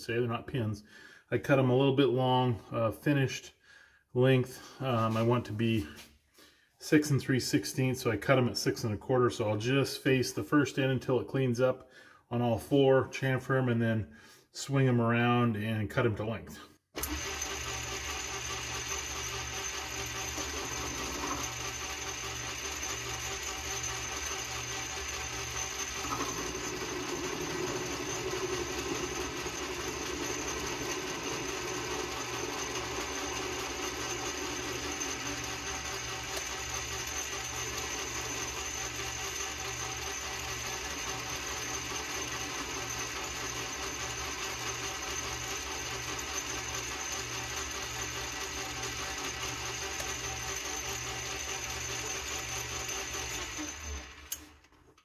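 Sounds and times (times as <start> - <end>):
metal lathe running: 17.0 - 54.5
lathe cutting steel: 17.0 - 54.6.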